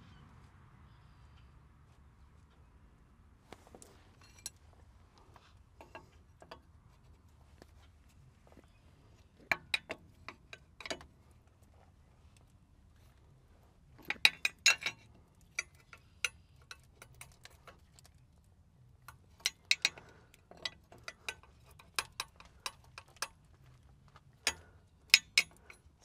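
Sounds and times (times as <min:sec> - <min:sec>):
metal clicks of air-line fittings: 0:19.1 - 0:23.4.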